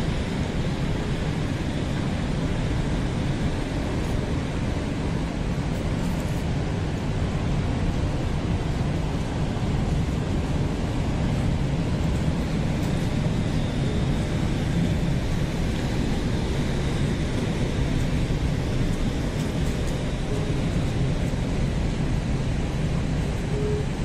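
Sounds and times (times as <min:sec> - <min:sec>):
low rumble of metro station: 0:00.0 - 0:24.0.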